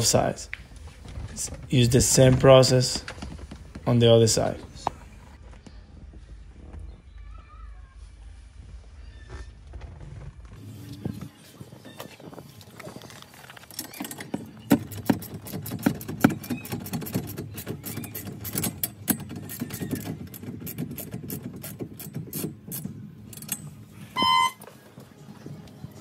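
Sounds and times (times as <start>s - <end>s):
short electronic beep: 24.1s - 24.7s.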